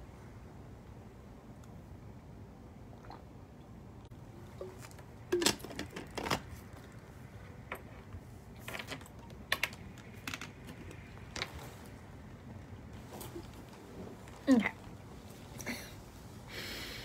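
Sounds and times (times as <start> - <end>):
hands handling things clicking: 7.7 - 11.6.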